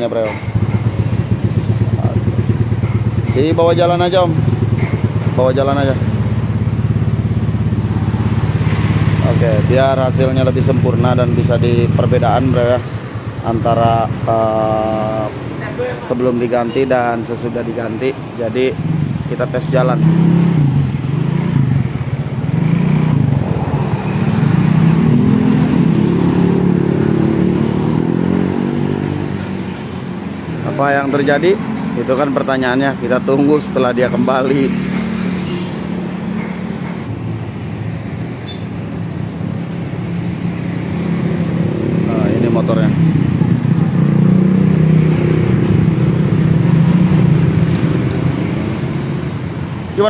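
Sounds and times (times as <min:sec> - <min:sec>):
scooter engine running: 0:00.3 - 0:09.8
scooter engine accelerating: 0:00.3 - 0:12.0, 0:20.0 - 0:32.0, 0:40.2 - 0:49.4.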